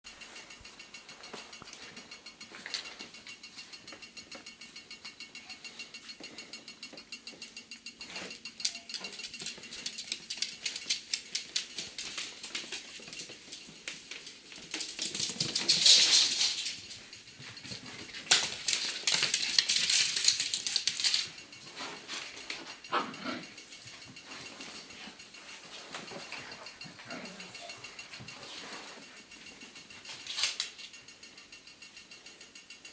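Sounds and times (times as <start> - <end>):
paws clicking and scuffling: 8.0 - 30.7.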